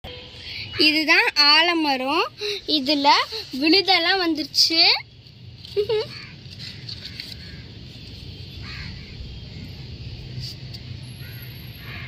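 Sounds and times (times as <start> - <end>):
faint crow caws: 6.1 - 7.8, 8.6 - 9.2, 11.1 - 12.0.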